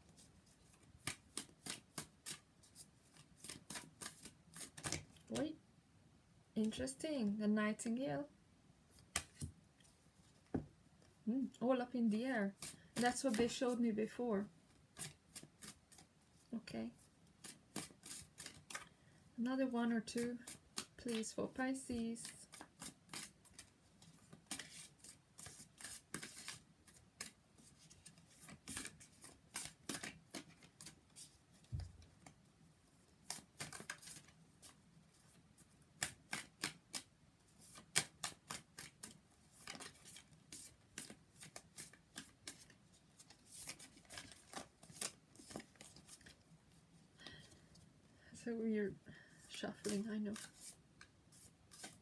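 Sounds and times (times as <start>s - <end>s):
cards being shuffled: 0.1s - 5.4s, 8.9s - 9.6s, 12.6s - 13.9s, 14.9s - 16.1s, 17.4s - 18.9s, 20.2s - 32.4s, 33.2s - 46.4s, 49.4s - 52.0s.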